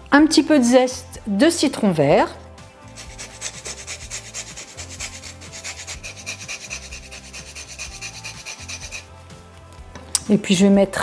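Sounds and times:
fruit rind scraping on grater: 0:02.8 - 0:09.1.

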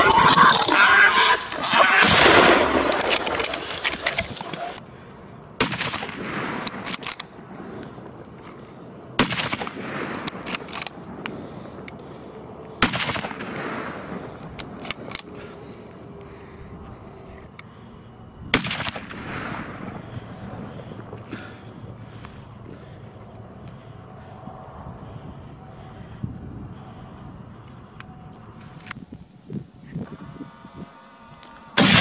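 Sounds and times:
faint cracks: 0:00.0 - 0:04.8
gunshots echoing: 0:00.0 - 0:04.8, 0:05.6 - 0:07.2, 0:09.2 - 0:11.0, 0:12.8 - 0:15.1, 0:18.5 - 0:20.4, 0:31.8 - 0:32.0.

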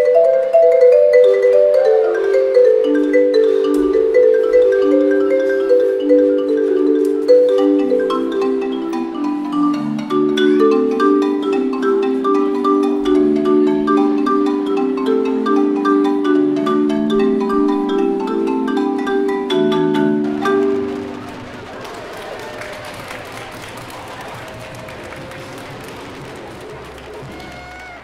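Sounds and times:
marimba playing quick mallet notes: 0:00.0 - 0:21.5
drums: 0:18.5 - 0:28.0.

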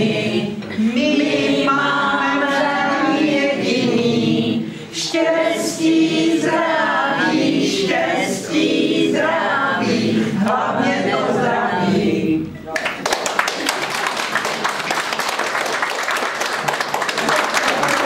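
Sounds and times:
group singing unaccompanied: 0:00.0 - 0:12.6.

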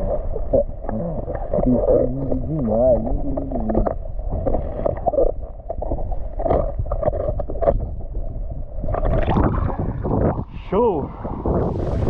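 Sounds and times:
muffled underwater water sloshing: 0:00.0 - 0:12.0
knocks and splashes: 0:08.8 - 0:10.5.

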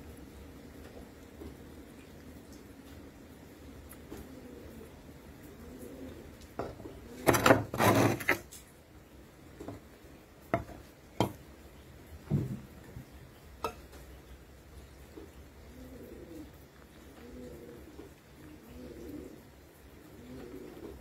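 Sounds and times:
pigeons cooing: 0:00.1 - 0:08.5, 0:09.2 - 0:21.0
rustling scrape on tabletop: 0:07.2 - 0:08.6.

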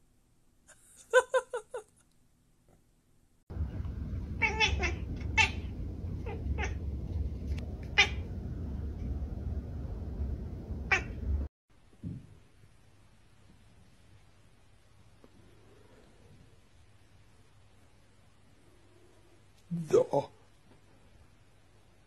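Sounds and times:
steady low hum: 0:03.5 - 0:11.5
cat meowing: 0:04.3 - 0:06.8, 0:07.8 - 0:08.3, 0:10.9 - 0:11.2.

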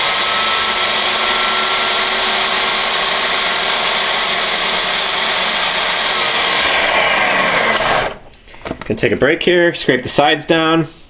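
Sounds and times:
electric blender whining: 0:00.0 - 0:08.3.

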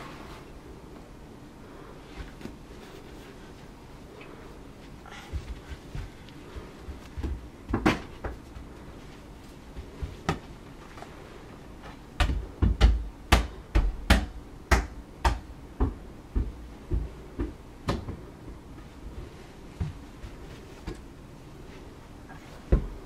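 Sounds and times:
balls thudding down carpeted stairs: 0:05.1 - 0:09.1, 0:09.7 - 0:10.7, 0:11.8 - 0:21.1, 0:22.4 - 0:23.0.

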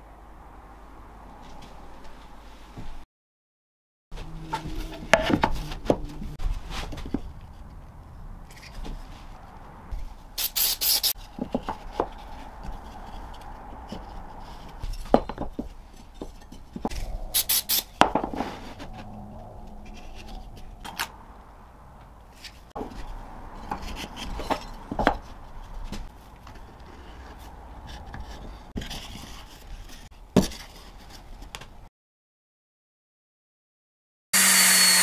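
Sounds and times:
aerosol spray hissing: 0:10.4 - 0:11.2.

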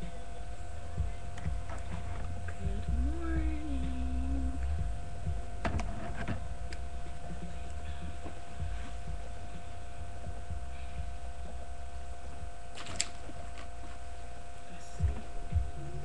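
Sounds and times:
person humming: 0:00.0 - 0:05.9, 0:14.6 - 0:16.0
electrical hum and low rumble: 0:00.0 - 0:16.0.

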